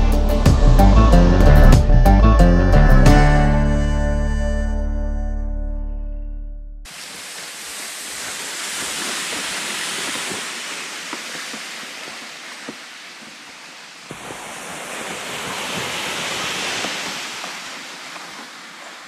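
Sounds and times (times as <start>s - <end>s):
footsteps crunching in snow: 6.9s - 19.0s
plastic sled sliding over snow: 6.9s - 19.0s.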